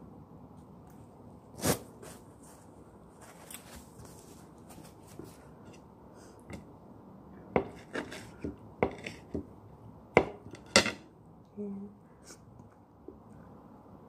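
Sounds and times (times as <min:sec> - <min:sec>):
knife cutting a lemon: 0:07.6 - 0:09.4
knife knocking on hard surface: 0:07.6 - 0:09.5, 0:10.2 - 0:11.0.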